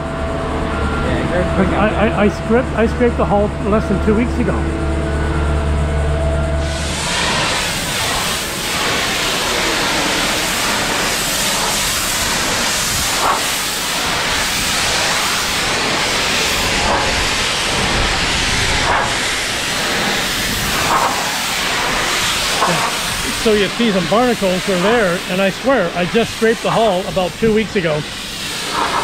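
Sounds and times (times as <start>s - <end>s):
pressure washer spray hissing: 6.6s - 29.0s.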